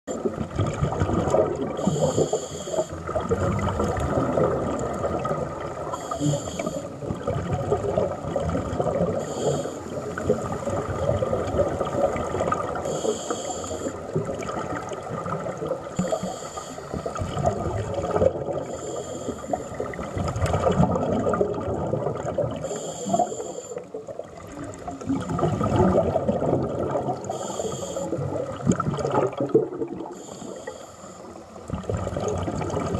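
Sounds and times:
steady underwater rumble: 0.1s - 32.9s
underwater bubbling: 0.1s - 32.9s
hissing regulator breath: 1.8s - 3.0s, 6.0s - 6.9s, 9.2s - 10.2s, 12.9s - 14.0s, 16.0s - 17.2s, 18.7s - 19.8s, 22.6s - 23.9s, 27.3s - 28.2s, 30.2s - 31.5s.

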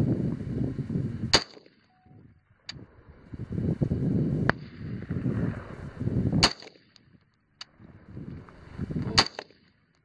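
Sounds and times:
rifle shots: 1.3s - 1.8s, 6.4s - 7.0s, 9.1s - 9.7s.

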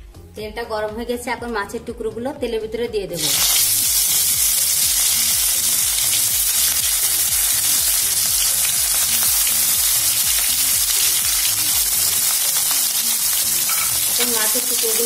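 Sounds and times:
fish sizzling in hot oil: 3.2s - 15.0s.

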